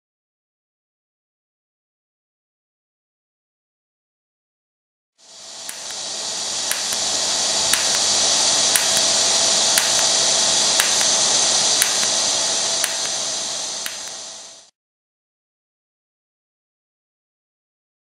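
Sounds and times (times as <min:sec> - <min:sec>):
welding arc hissing: 0:05.2 - 0:14.7
sharp tick: 0:05.7 - 0:06.0, 0:06.7 - 0:09.2, 0:09.8 - 0:14.3.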